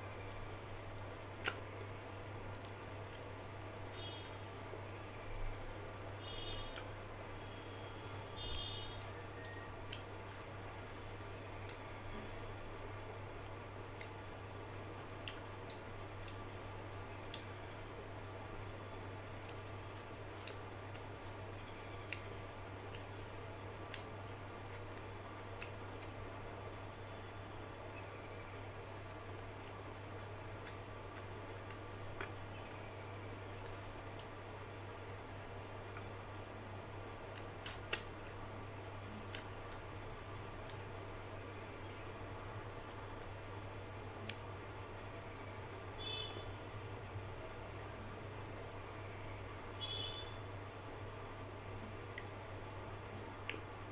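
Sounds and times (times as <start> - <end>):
steady low hum: 0.0 - 53.9
chewing and mouth clicks: 0.9 - 1.9, 8.9 - 10.5, 13.9 - 26.8, 29.0 - 32.9, 33.6 - 34.4, 37.3 - 38.4, 39.2 - 40.9.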